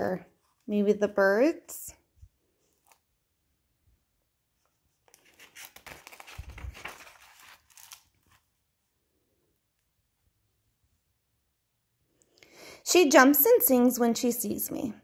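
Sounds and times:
paper page turning: 2.6 - 3.1, 4.6 - 8.6.

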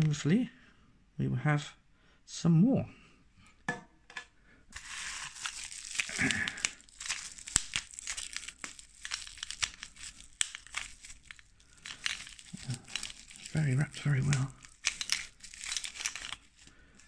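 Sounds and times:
wrapping crinkling and tearing: 4.7 - 17.0.

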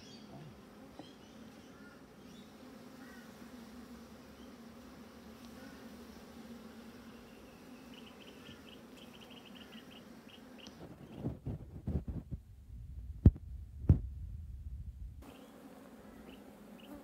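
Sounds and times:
bees buzzing: 0.0 - 11.5, 15.2 - 17.0.

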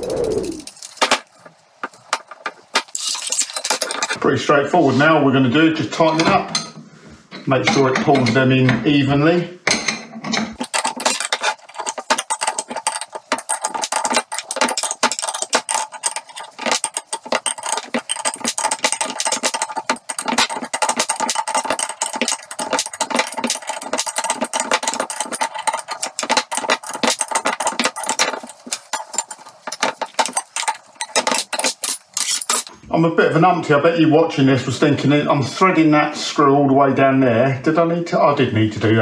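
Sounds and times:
spanner clicking and rattling: 10.6 - 32.7.

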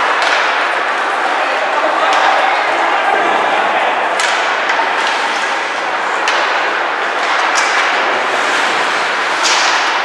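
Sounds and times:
puck and sticks cracking: 0.0 - 0.9, 2.1 - 2.5, 4.1 - 5.3, 6.1 - 10.0.

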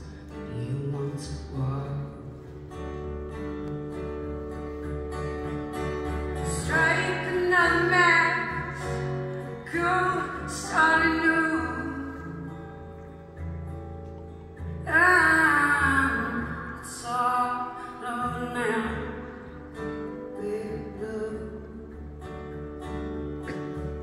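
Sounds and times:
acoustic guitar playing: 0.0 - 24.0
woman singing: 6.4 - 12.5, 14.8 - 19.5, 20.3 - 22.1.

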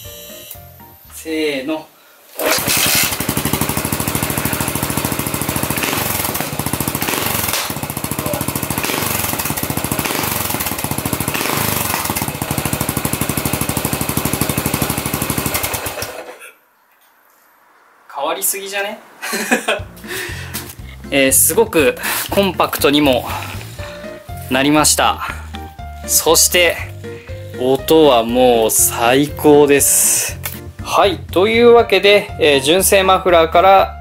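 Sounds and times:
motorcycle engine running and revving: 2.4 - 16.2.

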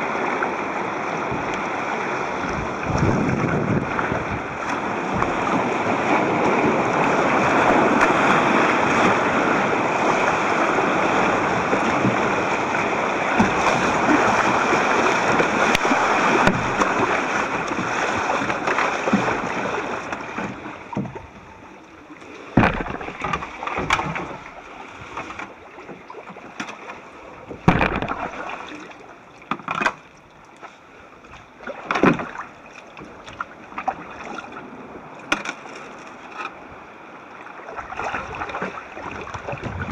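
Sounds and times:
choppy water rushing around kayak: 0.0 - 39.9
wind: 0.0 - 39.9
sharp splashes and knocks: 2.5 - 9.4, 11.3 - 21.4, 22.4 - 30.7, 31.3 - 36.6.

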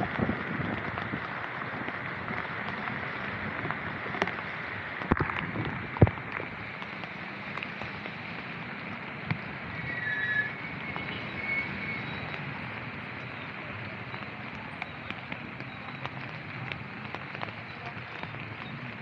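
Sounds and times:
wind on microphone: 0.0 - 7.0
heavy rain hissing: 0.0 - 19.0
tyres on wet road: 0.0 - 19.0.

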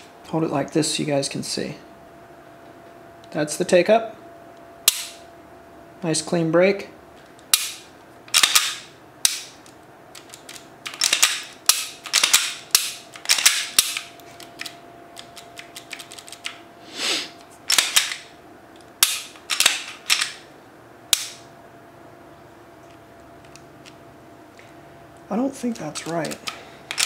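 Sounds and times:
pistol metallic clicks and clacks: 7.5 - 16.6, 17.7 - 18.3, 19.0 - 20.4, 21.1 - 21.4, 25.8 - 27.0.

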